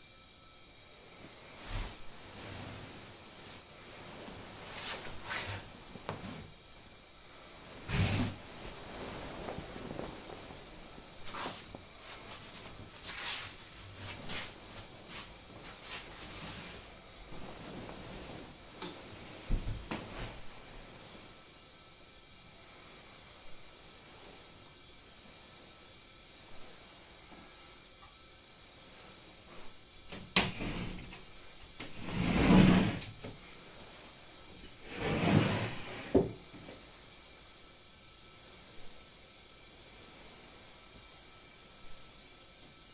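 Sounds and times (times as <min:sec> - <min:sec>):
rustle of clothing: 0:01.2 - 0:21.6, 0:28.6 - 0:37.2
footsteps sliding over mats: 0:04.3 - 0:06.5, 0:07.8 - 0:21.3
wooden door sliding on track: 0:30.1 - 0:31.2, 0:31.8 - 0:33.2, 0:34.8 - 0:36.4.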